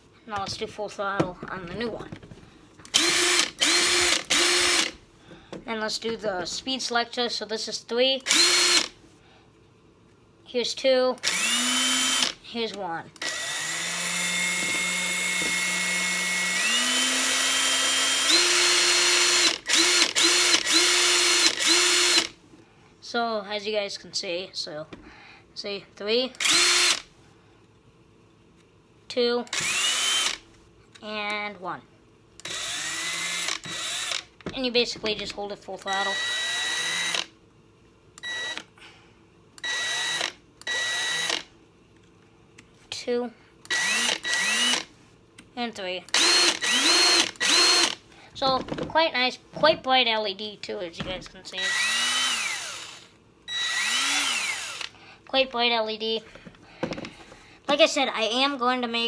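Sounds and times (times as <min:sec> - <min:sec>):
impact driver motor whine: 0:02.9 - 0:05.0, 0:11.2 - 0:12.4, 0:13.2 - 0:22.3, 0:29.5 - 0:30.4, 0:43.7 - 0:44.9, 0:46.1 - 0:48.0, 0:51.6 - 0:54.9
impact driver short bursts: 0:39.6 - 0:41.5, 0:43.7 - 0:44.9, 0:46.1 - 0:48.0.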